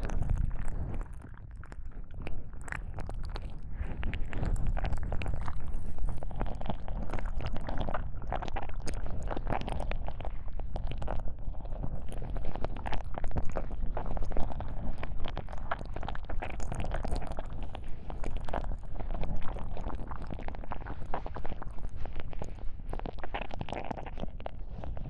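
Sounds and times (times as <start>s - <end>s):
low rumble: 0.0s - 8.5s
ear-cleaning rubbing and crackling: 0.0s - 25.0s.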